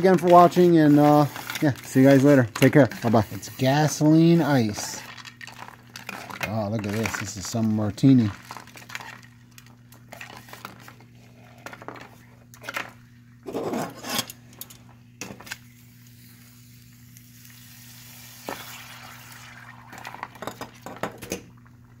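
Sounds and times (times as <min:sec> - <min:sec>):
liquid nitrogen hissing: 0:00.0 - 0:09.8, 0:15.5 - 0:21.0.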